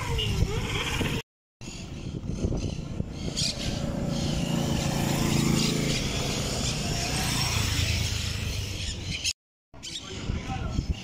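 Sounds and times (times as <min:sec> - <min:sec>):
motorcycle passing: 0:01.9 - 0:09.4
deeper motorcycle engine: 0:02.2 - 0:09.1.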